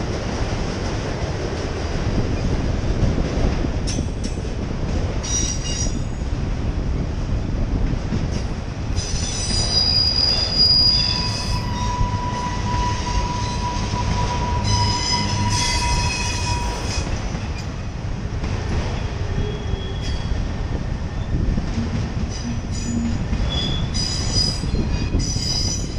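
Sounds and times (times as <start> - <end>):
freight cars rumbling on rails: 0.0 - 25.9
wheels squealing: 9.0 - 17.1, 22.3 - 25.9.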